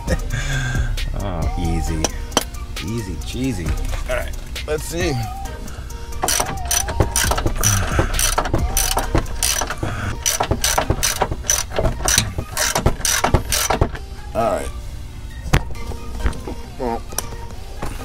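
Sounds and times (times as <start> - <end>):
ratchet wrench clicking: 6.2 - 14.0.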